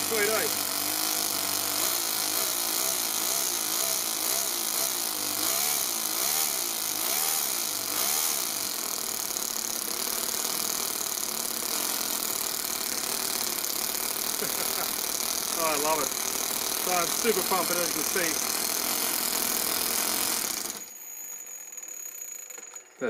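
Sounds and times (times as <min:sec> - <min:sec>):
model engine revving: 0:00.0 - 0:21.0.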